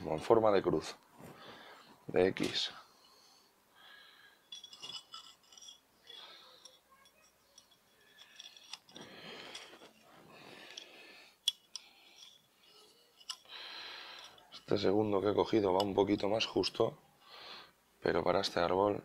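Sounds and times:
wire scraping against a pot: 4.4 - 16.8.

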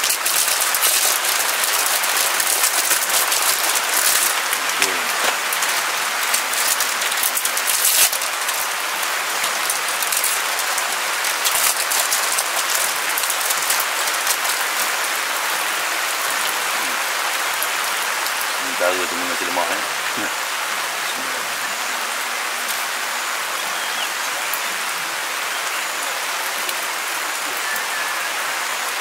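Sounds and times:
plastic wrapper crinkling: 0.0 - 15.7
rain on a tarp: 0.0 - 29.0.

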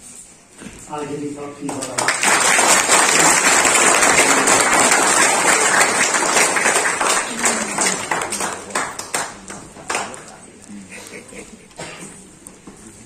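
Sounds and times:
crowd applauding: 1.6 - 10.4.

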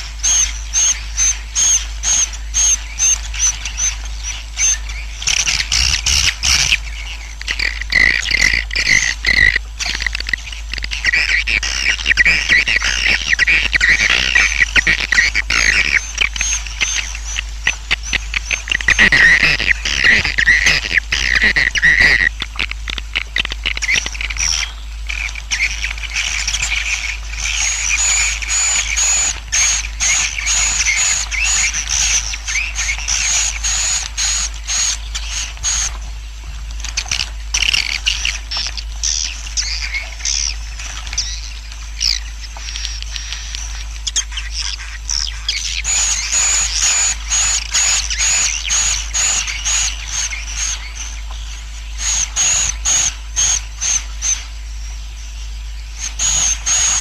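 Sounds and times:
low hum: 0.0 - 57.0
swiftlets twittering: 4.6 - 24.7.

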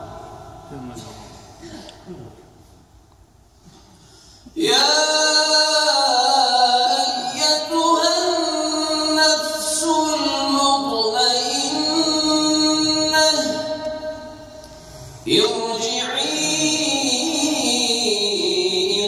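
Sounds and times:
man chanting melodically: 4.6 - 14.6, 15.2 - 19.0.

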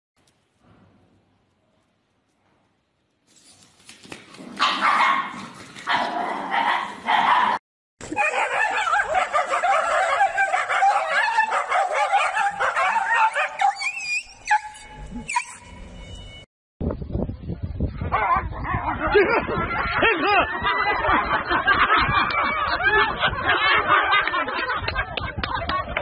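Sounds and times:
dogs barking and yelping: 4.5 - 15.8, 18.0 - 24.6
high dog yips: 4.6 - 15.7.

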